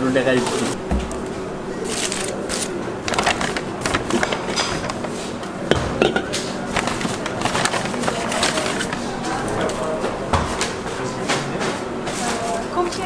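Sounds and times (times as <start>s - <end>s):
aluminium foil crinkling: 1.9s - 4.7s, 6.7s - 9.8s.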